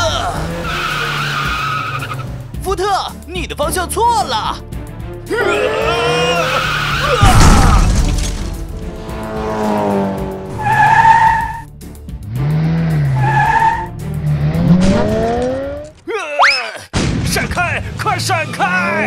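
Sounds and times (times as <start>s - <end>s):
cartoon tyres squealing: 0.0s - 2.3s, 5.4s - 8.2s, 10.5s - 11.7s, 12.6s - 14.8s
background music: 0.0s - 16.2s
cartoon car crash: 6.5s - 8.9s.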